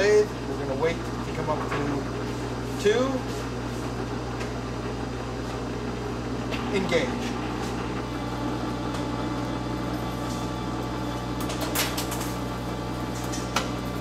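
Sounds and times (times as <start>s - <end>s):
metal lathe humming: 3.4s - 11.7s.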